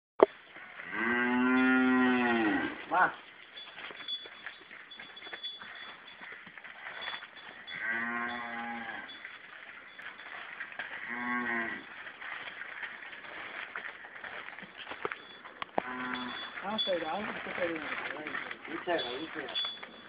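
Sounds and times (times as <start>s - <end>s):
cow mooing: 0.8s - 2.9s, 7.7s - 9.2s, 11.0s - 11.9s, 15.8s - 16.6s.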